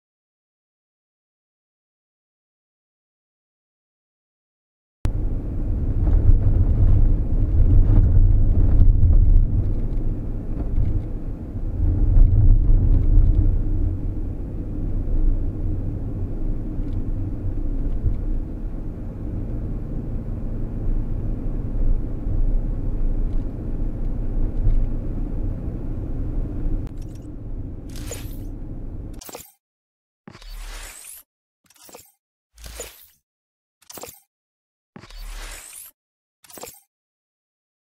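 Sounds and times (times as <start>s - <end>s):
tyre and engine rumble: 5.1s - 29.6s.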